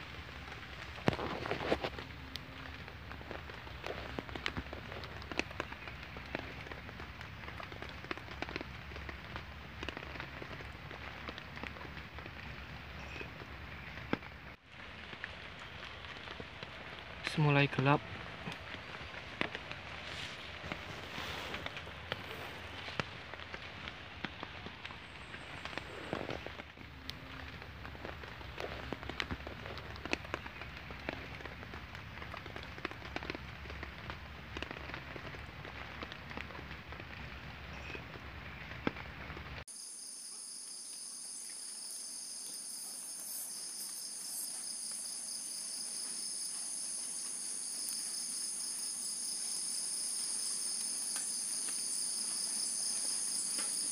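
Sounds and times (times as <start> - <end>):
rain pattering: 0.0 - 39.7, 40.6 - 53.9
insect chorus: 39.7 - 53.9.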